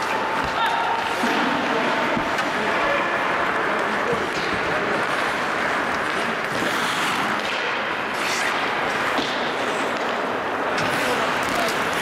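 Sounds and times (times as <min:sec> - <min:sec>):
skates scraping on ice: 0:00.0 - 0:12.0
hockey sticks and puck knocking: 0:03.4 - 0:12.0.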